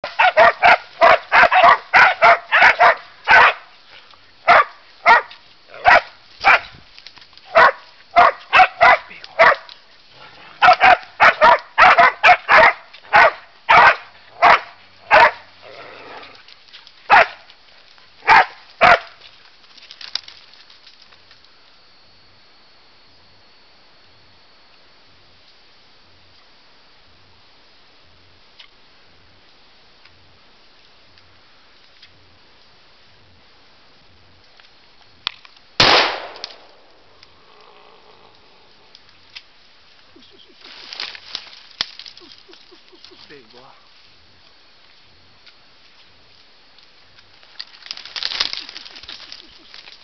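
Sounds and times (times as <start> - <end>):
dog barking sharply: 0.0 - 3.6, 7.5 - 9.6, 10.6 - 15.4, 18.2 - 19.1.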